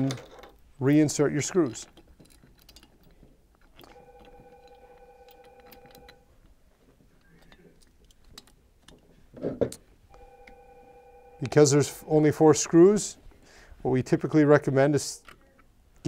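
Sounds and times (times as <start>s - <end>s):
faint steady tone: 3.8s - 6.3s, 10.1s - 12.5s.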